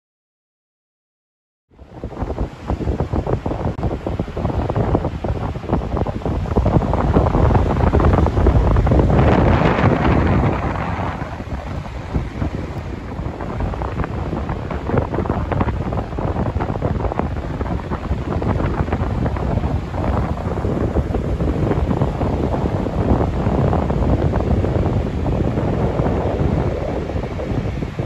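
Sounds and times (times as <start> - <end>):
wind buffeting microphone: 1.7 - 28.0.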